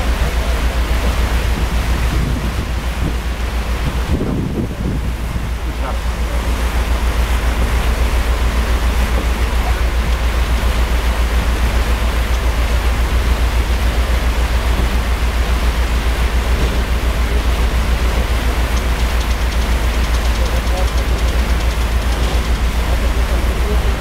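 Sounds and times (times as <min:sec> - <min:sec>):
wind on microphone: 0:00.0 - 0:06.6
boat engine throbbing: 0:00.0 - 0:24.0
churned water rushing: 0:00.0 - 0:24.0.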